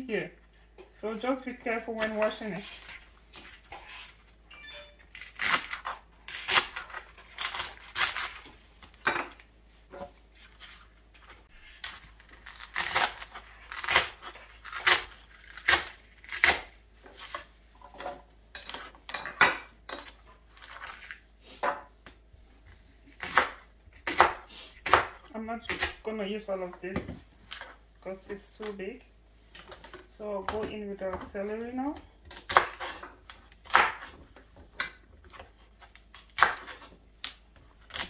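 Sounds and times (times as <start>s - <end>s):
knife chopping on wooden board: 32.4s - 35.5s, 36.3s - 36.9s.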